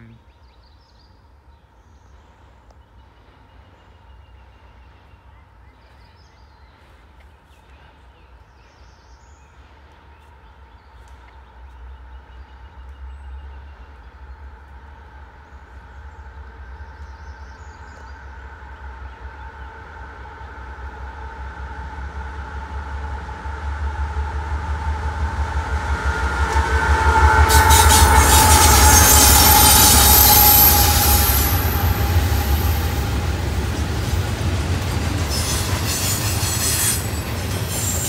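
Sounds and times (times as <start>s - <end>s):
diesel locomotive rumble: 13.0s - 38.0s.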